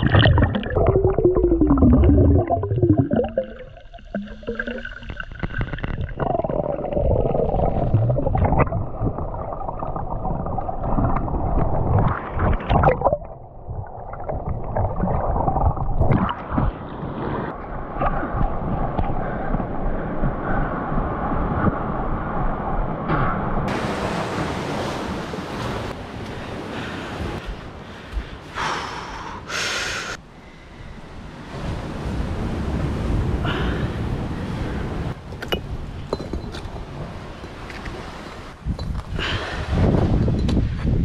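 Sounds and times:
muffled water sloshing and gurgling: 0.0s - 27.4s.

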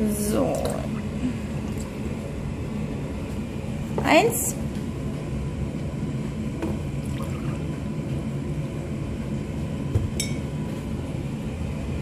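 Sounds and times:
juice pouring into a mug: 7.0s - 7.9s.

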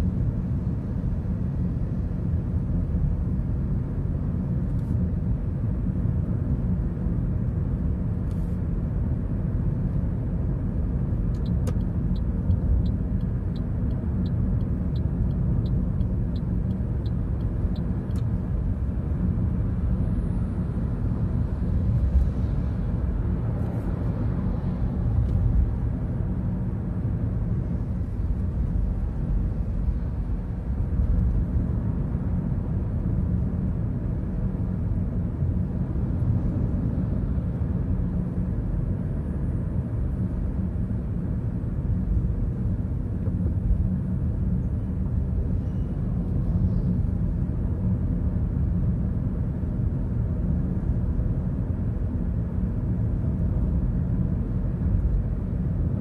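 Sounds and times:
car road and engine rumble: 0.0s - 56.0s.

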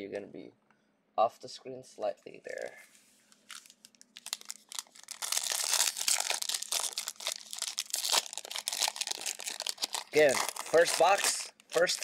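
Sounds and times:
plastic wrapper crinkling and tearing: 3.3s - 12.0s.

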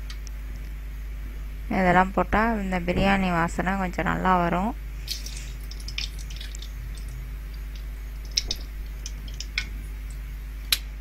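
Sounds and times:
spices sizzling in hot oil: 4.9s - 10.3s.

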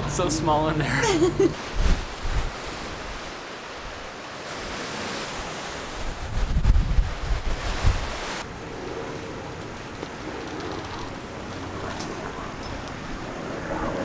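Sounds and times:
choppy lake water rushing: 0.0s - 14.0s
wind buffeting the microphone: 1.6s - 4.8s, 5.4s - 8.5s.

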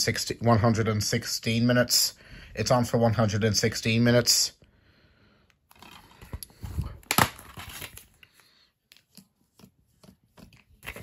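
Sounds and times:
plastic case rustling: 5.7s - 8.2s
plastic case snap: 7.0s - 7.9s.

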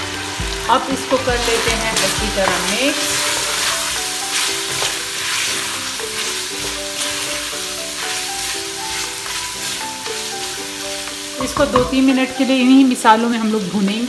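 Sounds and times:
meat and spices sizzling in oil: 0.0s - 14.0s
soft background music: 0.0s - 14.0s
wooden spoon scraping a pan: 1.4s - 12.3s.

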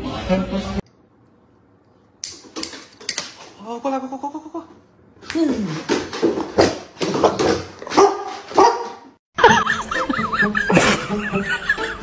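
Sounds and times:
dog barking: 7.9s - 9.1s.

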